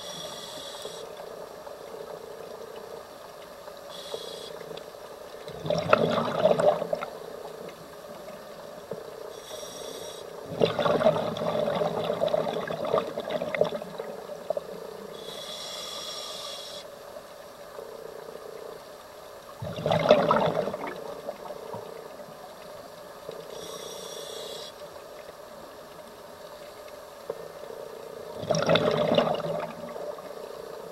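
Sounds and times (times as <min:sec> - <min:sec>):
regulator hissing inhalation: 0:00.0 - 0:01.1, 0:15.2 - 0:16.9, 0:23.6 - 0:24.8
rush of exhaled bubbles: 0:05.5 - 0:07.2, 0:10.4 - 0:14.6, 0:19.6 - 0:21.8, 0:28.3 - 0:30.4.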